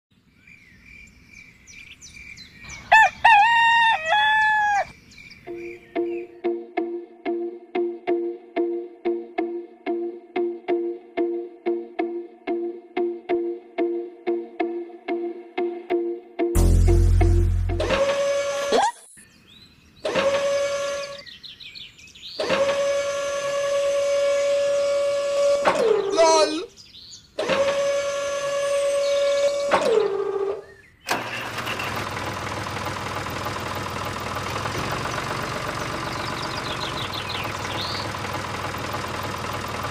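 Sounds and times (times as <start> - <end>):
birds chirping: 0.2 - 6.4, 19.1 - 22.5, 25.8 - 27.4, 28.9 - 29.8, 30.6 - 31.1, 33.3 - 39.9
loud pitched bird call: 1.8 - 5.0, 34.9 - 38.2
plucked music notes: 16.4 - 18.2
small electric motor whining: 20.1 - 21.2, 22.4 - 26.1, 27.4 - 30.6.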